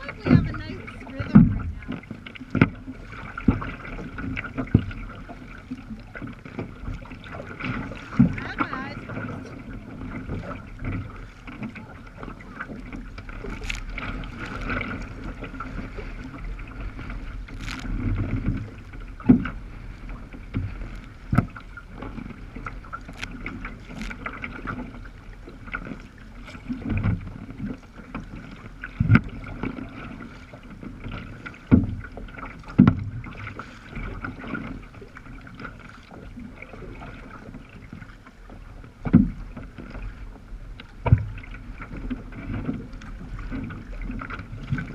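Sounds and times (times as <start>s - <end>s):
wave slapping against bow: 0.0s - 40.2s
water sloshing along hull: 0.0s - 44.9s.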